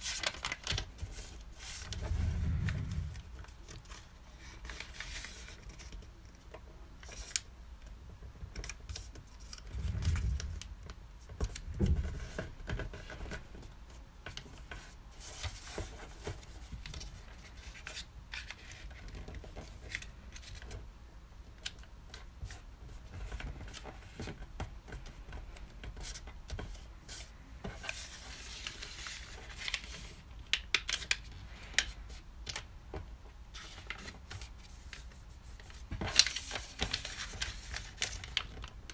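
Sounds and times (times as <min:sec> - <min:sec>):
paper rustling and crinkling: 0:00.0 - 0:07.5, 0:08.2 - 0:20.8, 0:21.6 - 0:32.7, 0:33.5 - 0:38.9
soft low thumps: 0:09.8 - 0:10.7.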